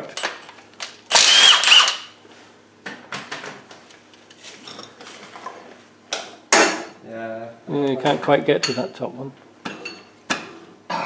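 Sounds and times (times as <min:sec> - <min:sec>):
impact wrench: 0:01.1 - 0:02.1.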